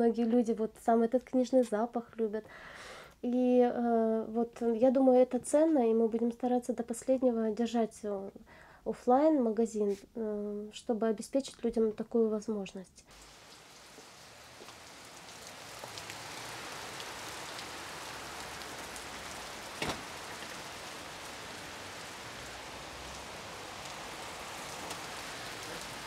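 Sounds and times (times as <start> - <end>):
steady rain: 13.1 - 26.0.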